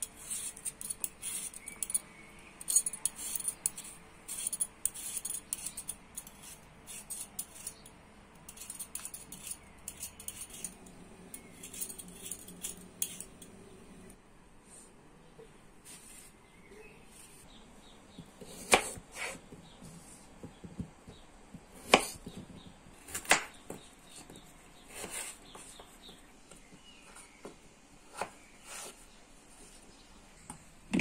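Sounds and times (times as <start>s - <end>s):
faint steady hum: 0.0s - 15.8s.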